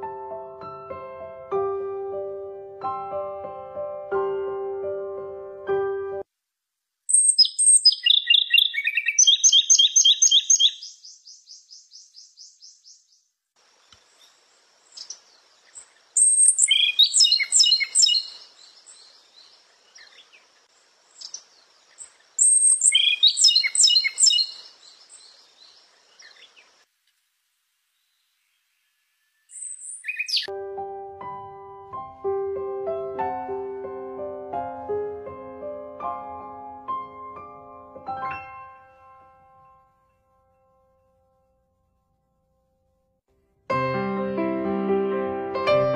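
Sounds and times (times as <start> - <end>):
songbird singing: 7.1 - 26.9, 27.9 - 30.5.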